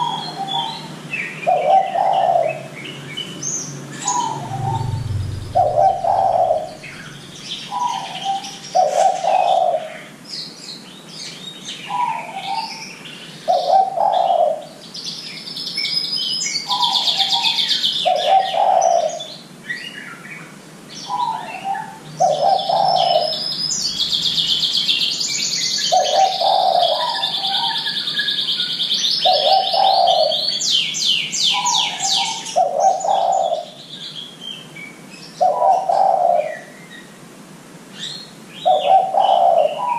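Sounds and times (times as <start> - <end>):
dove cooing: 0.0 - 2.7, 4.0 - 9.9, 13.5 - 14.7, 16.7 - 19.3, 22.2 - 23.4, 25.9 - 27.8, 29.2 - 30.4, 31.6 - 33.8, 35.4 - 36.6, 38.6 - 39.9
songbirds chirping and trilling: 0.0 - 39.9.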